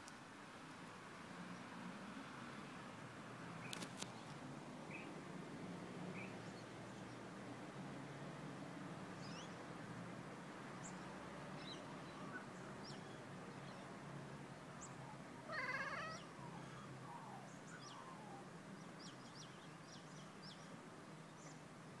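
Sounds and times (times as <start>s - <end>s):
small birds chirping: 3.6s - 5.1s, 6.1s - 7.3s, 9.2s - 9.6s, 10.8s - 14.0s, 14.8s - 21.7s
cat trilling chirp: 15.5s - 16.3s.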